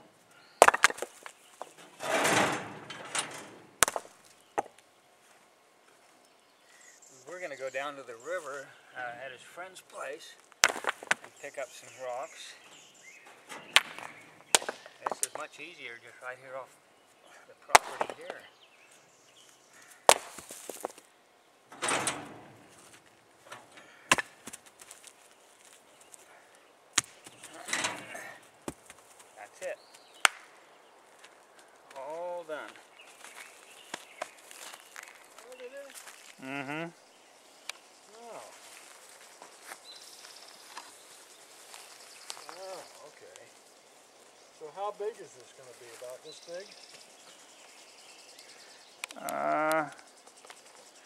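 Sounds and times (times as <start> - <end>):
stone knocking against stone: 0.6 - 1.2
rocks clacking onto rock pile: 0.6 - 3.1, 3.8 - 4.8, 10.5 - 11.4, 13.7 - 15.6, 17.7 - 18.4, 20.1 - 21.0.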